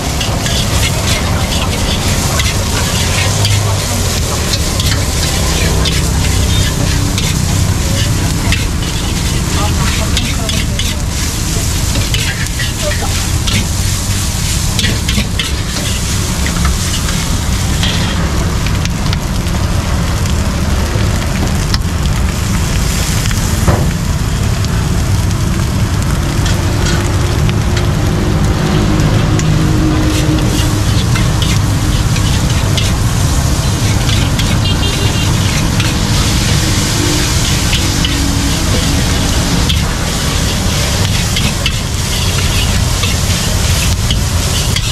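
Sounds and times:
metal spatula scraping wok: 0.0 - 18.4, 26.3 - 27.9, 29.1 - 44.9
rice sizzling in a wok: 0.0 - 44.9.

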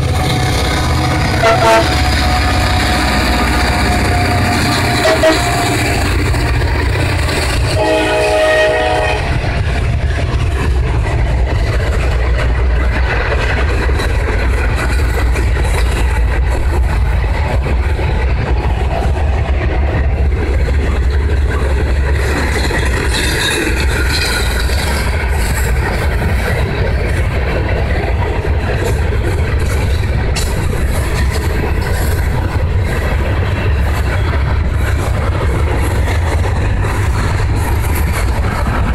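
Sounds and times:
locomotive horn blast: 0.0 - 6.0, 7.7 - 9.4
freight train rumbling past: 0.0 - 38.9
wheels clattering on rail joints: 0.0 - 38.9.

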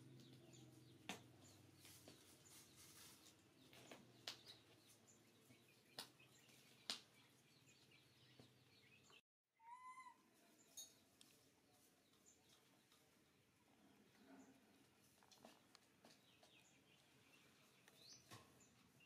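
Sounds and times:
monkey high arching call: 9.6 - 10.3.

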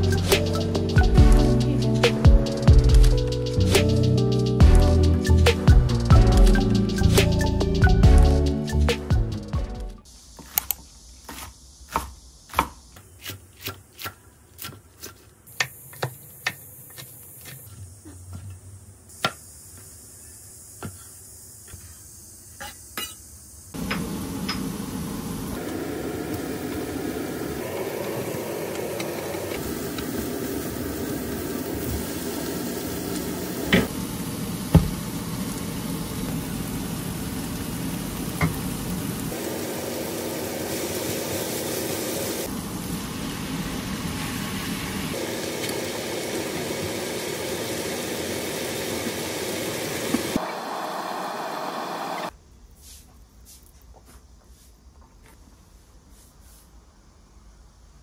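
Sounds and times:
knife chopping on wooden board: 11.3 - 17.6
garlic sizzling in oil: 19.2 - 52.2.

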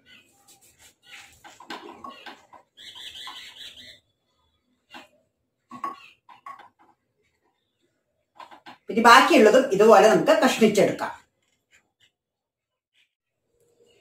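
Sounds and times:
knife squeaky scrape: 0.0 - 4.0.

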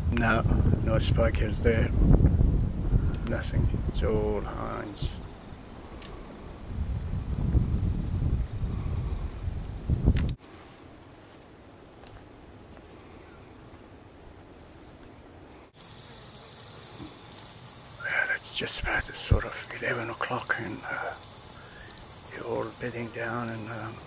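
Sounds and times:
high-pitched insect chirring: 0.0 - 10.4, 15.8 - 24.0.

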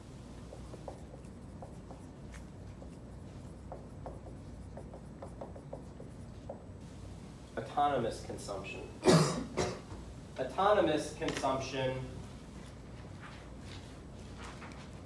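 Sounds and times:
marker squeaking on whiteboard: 0.5 - 6.7.

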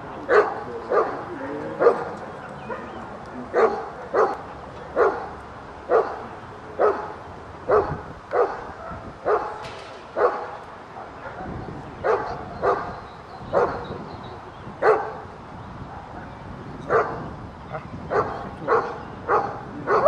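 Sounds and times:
dog barking sharply: 3.6 - 4.4, 5.9 - 6.2, 7.7 - 9.6, 10.2 - 10.6.

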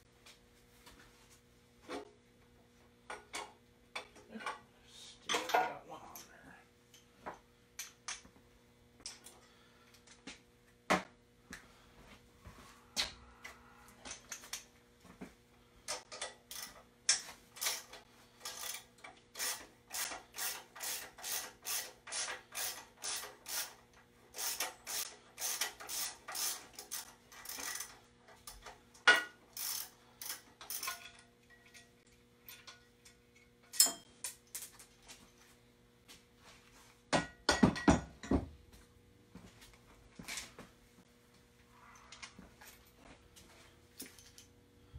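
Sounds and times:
faint electrical hum: 0.0 - 44.9
ratchet wrench clicking: 16.5 - 23.8, 24.4 - 28.6, 29.6 - 31.1
tools knocking on metal: 37.1 - 38.5.

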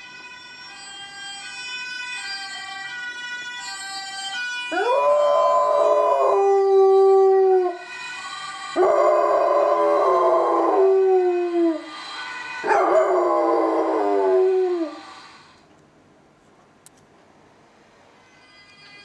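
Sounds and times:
dog howling: 4.7 - 7.8, 8.8 - 11.9, 12.6 - 15.0.

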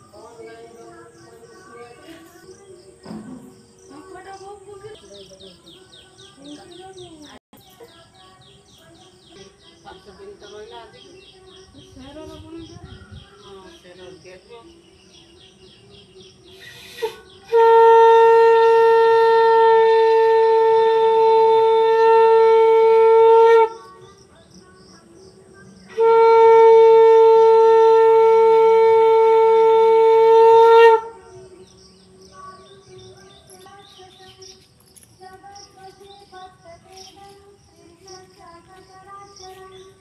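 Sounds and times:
conch shell blasts: 17.0 - 23.7, 25.9 - 31.2.

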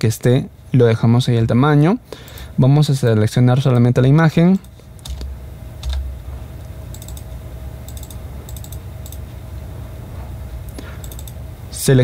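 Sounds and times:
steady low hum: 0.0 - 12.0
computer mouse clicking: 6.9 - 7.3, 7.9 - 9.3, 10.6 - 11.4.

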